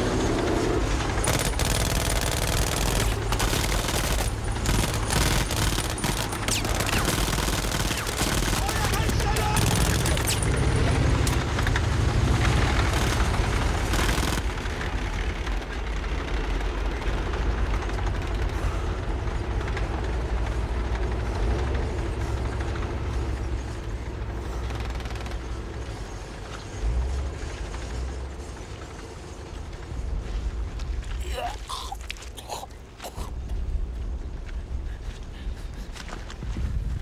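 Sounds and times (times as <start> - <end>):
low rumble of war noise: 0.0 - 37.0
gunfire bursts: 1.2 - 10.6, 12.4 - 14.7.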